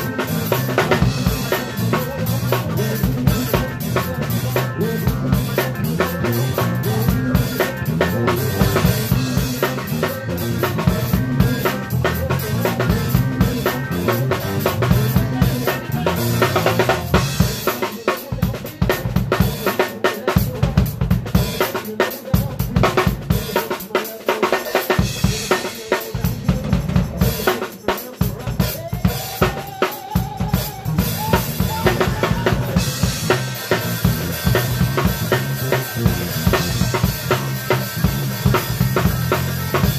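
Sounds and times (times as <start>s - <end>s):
bass guitar notes: 0.0s - 17.5s, 30.6s - 39.9s
drum kit playing: 0.0s - 39.9s
live band playing soul-funk: 0.0s - 39.9s.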